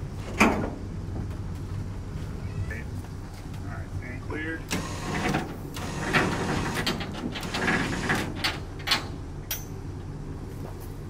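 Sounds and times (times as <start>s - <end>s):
lift gate motor humming: 4.2s - 10.5s
metal gate clanking: 4.7s - 9.8s.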